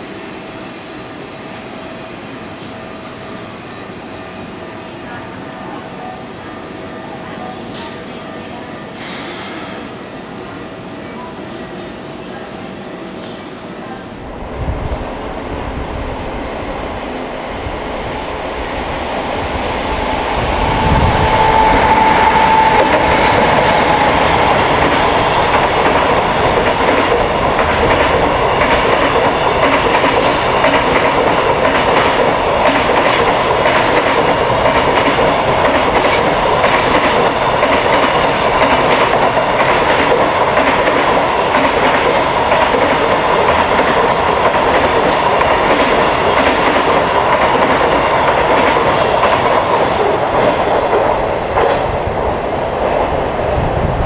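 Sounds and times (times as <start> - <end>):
freight train passing: 0.0 - 54.0.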